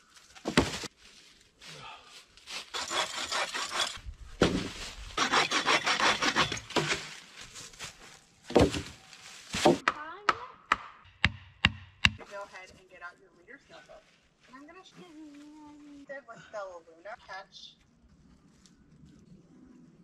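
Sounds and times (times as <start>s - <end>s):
hand saw cutting log: 2.7s - 4.0s, 5.2s - 7.0s.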